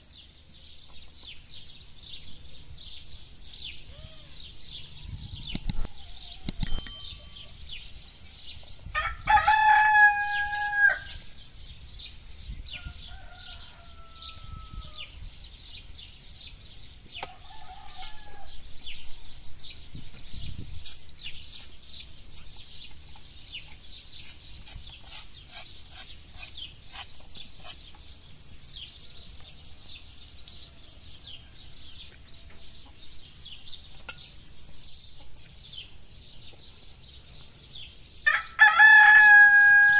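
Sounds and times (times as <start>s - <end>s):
small birds chirping: 0.0s - 39.9s
distant rooster crowing: 8.9s - 11.2s, 12.7s - 15.2s, 17.2s - 18.7s, 38.3s - 39.9s
rooster crowing: 9.0s - 11.2s, 12.8s - 15.1s, 17.3s - 18.6s, 38.3s - 39.9s.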